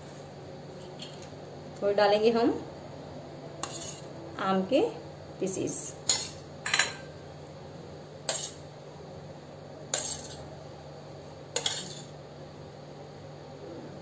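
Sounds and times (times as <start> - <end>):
metal spoon clinking on dishes: 6.1 - 7.1, 11.6 - 12.1.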